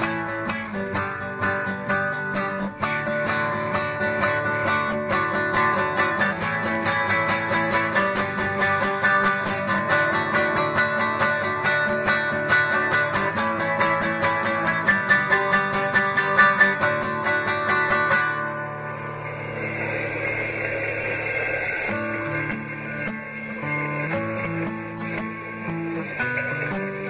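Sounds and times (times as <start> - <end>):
strummed guitar: 0.0 - 27.0.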